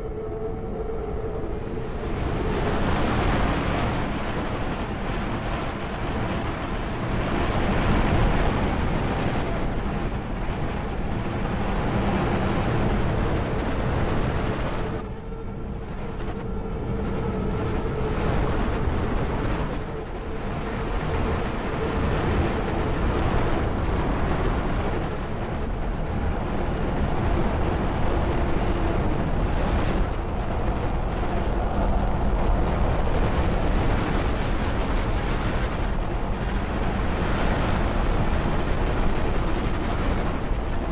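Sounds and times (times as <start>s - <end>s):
dense rushing noise: 15.9s - 40.9s.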